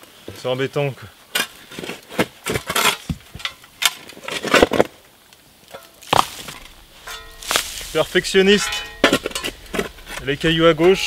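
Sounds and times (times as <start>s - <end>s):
mattock striking stony soil: 5.7s - 11.0s
shovel scooping earth and stones: 6.0s - 11.0s.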